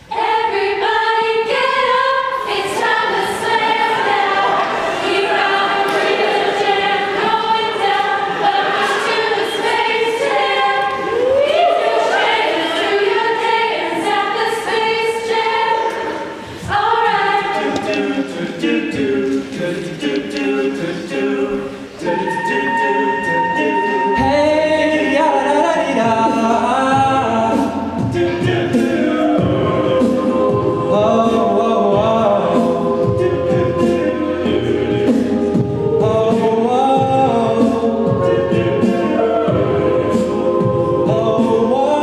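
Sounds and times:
a cappella group singing in harmony: 0.0s - 42.0s
steady beat: 22.2s - 42.0s.

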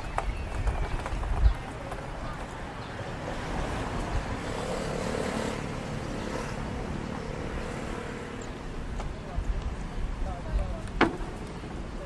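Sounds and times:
traffic hum: 0.0s - 12.0s.

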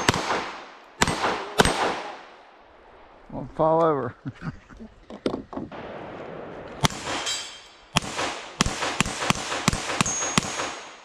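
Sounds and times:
pistol shots: 0.0s - 2.4s, 6.8s - 11.0s.

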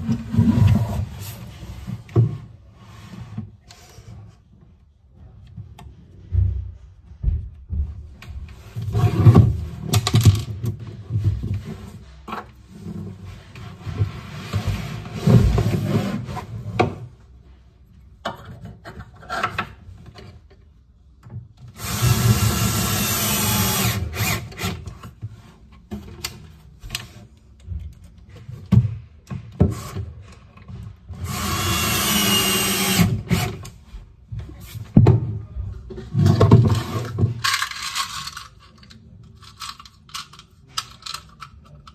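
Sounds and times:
cordless drill whining: 31.2s - 33.4s.

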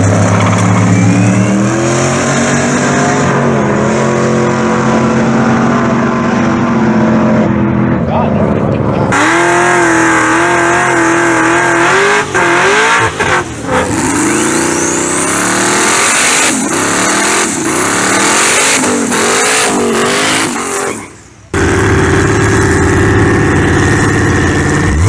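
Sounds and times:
race car engine revving: 0.0s - 25.0s
high rising whistle: 0.5s - 2.2s.

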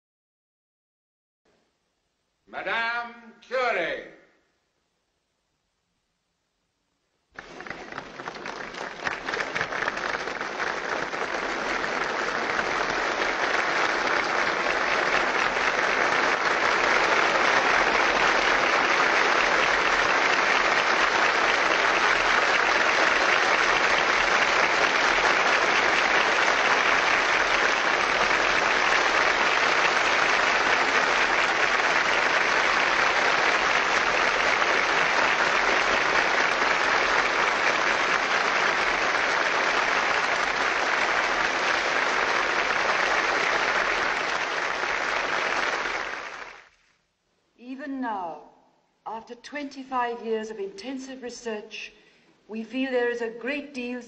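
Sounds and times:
large audience applauding: 7.3s - 47.0s.

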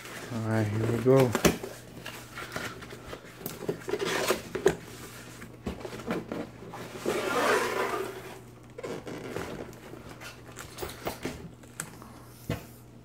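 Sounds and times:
cardboard tearing scrape: 3.9s - 4.5s, 6.8s - 9.6s.

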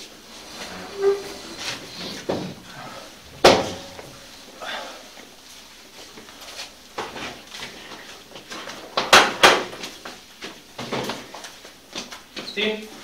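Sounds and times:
sharp knocks and bangs: 3.4s - 4.2s.

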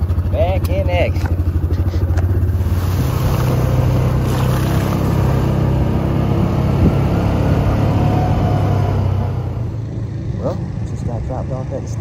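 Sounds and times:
off-road vehicle engine running: 0.0s - 12.0s.

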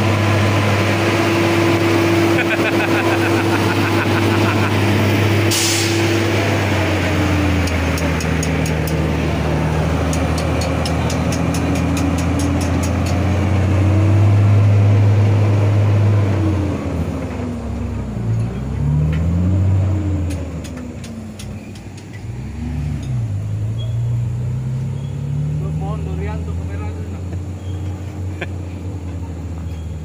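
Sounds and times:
truck diesel engine pulling away: 0.0s - 30.0s
air hiss: 5.4s - 6.2s.

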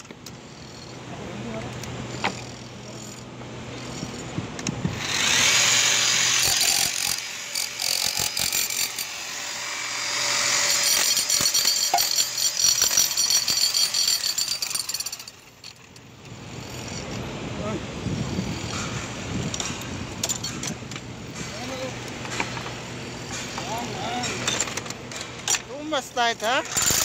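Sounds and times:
demolition hammer chiselling concrete: 1.6s - 15.5s, 26.4s - 27.0s.

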